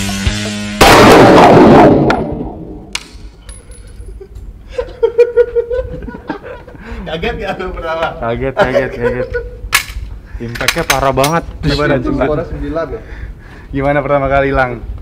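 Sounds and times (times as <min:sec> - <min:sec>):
loud gunshot ringing out: 0:00.8 - 0:03.2
light metallic clinks: 0:03.4 - 0:04.2.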